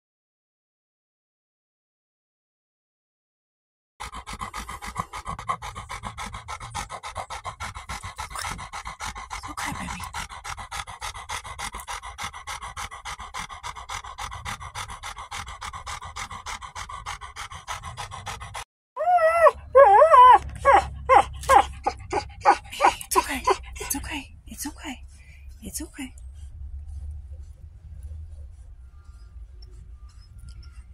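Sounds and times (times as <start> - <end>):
dog panting fast: 4.0 - 18.7, 20.4 - 30.9
dog whining: 4.2 - 24.0.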